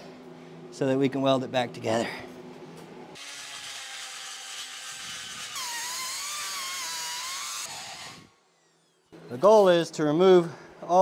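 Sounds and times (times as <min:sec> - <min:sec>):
power grinder whining: 0:03.2 - 0:09.6.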